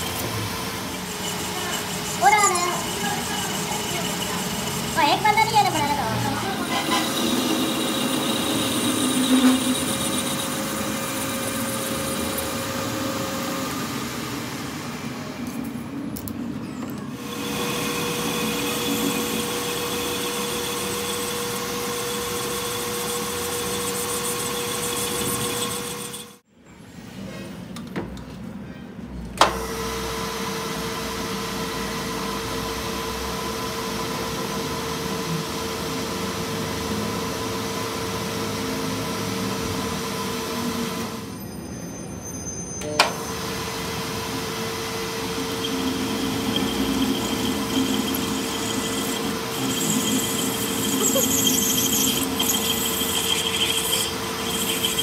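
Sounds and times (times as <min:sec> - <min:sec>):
drill boring into metal: 0:00.0 - 0:14.0, 0:17.2 - 0:26.4, 0:43.2 - 0:55.0
metal lathe cutting steel: 0:00.0 - 0:15.2, 0:17.1 - 0:26.4, 0:43.0 - 0:55.0.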